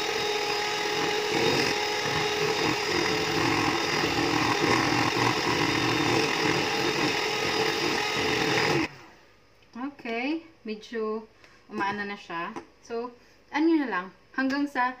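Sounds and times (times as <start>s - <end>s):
electric hand mixer running: 0.0s - 9.0s.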